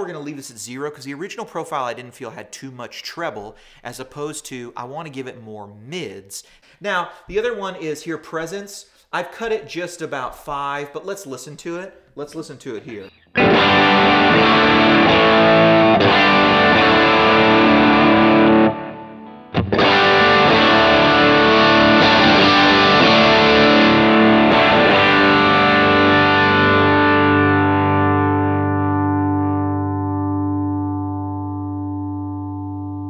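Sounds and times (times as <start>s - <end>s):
distorted electric guitar: 12.9s - 33.0s.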